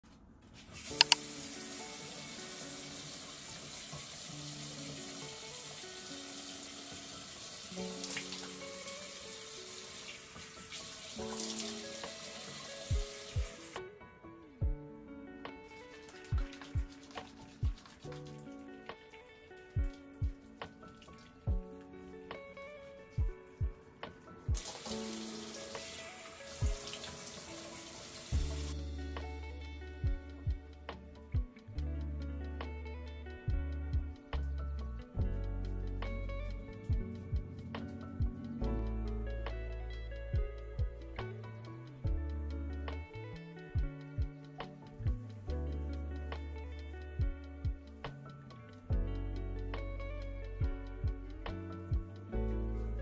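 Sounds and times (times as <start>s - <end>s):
slow background music: 0.1s - 53.0s
running water: 0.6s - 13.8s, 15.7s - 23.6s, 24.5s - 28.8s.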